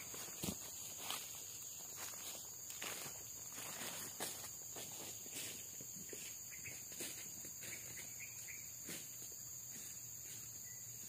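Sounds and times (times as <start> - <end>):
faint high-pitched insect drone: 0.0 - 11.0.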